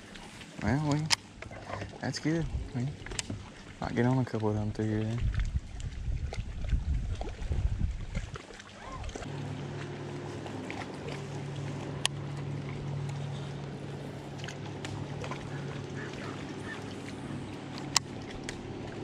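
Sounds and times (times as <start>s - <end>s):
electric boat motor humming: 9.0s - 19.0s.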